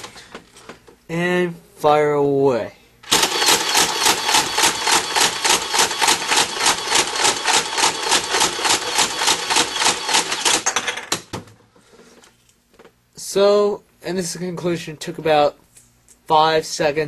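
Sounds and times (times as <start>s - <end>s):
toy blaster motor whine: 3.1s - 10.7s.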